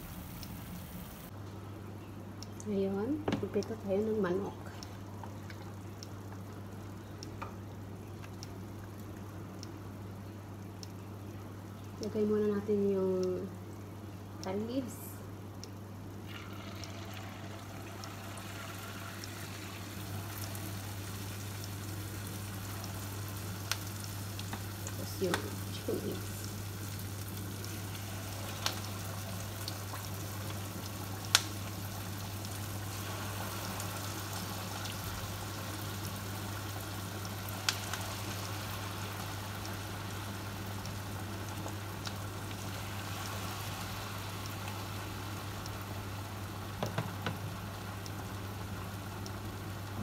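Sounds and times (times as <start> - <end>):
low steady hum: 0.0 - 50.0
chili paste sizzling in a pan: 16.4 - 50.0.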